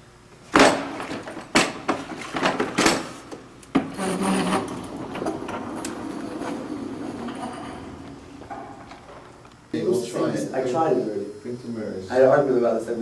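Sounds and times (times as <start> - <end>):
mop and wringer clattering: 0.5 - 9.4
mop bucket scraping on tile floor: 3.9 - 8.2.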